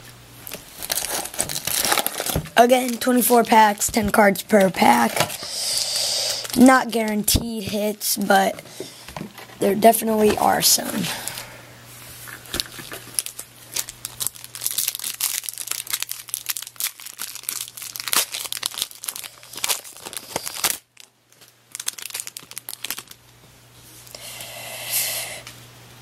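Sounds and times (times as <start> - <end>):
foil wrapper crinkling and tearing: 0.4 - 5.4, 6.2 - 7.2, 12.2 - 23.3.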